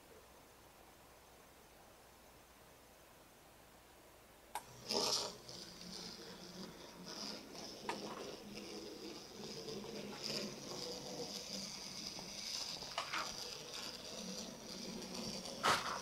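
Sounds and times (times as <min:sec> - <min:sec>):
small electric motors whirring: 0:04.6 - 0:16.0.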